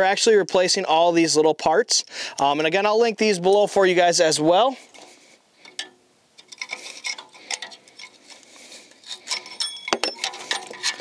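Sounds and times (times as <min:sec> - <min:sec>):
metal tool clicking and scraping: 0:05.6 - 0:11.0.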